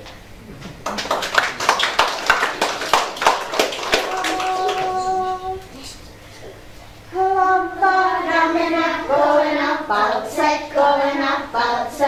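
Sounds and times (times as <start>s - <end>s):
audience applauding: 0.7s - 5.6s.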